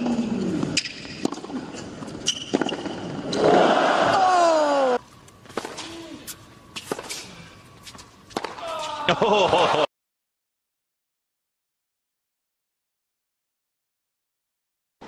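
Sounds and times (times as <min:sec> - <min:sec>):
tennis ball racket hits: 0:05.5 - 0:09.1.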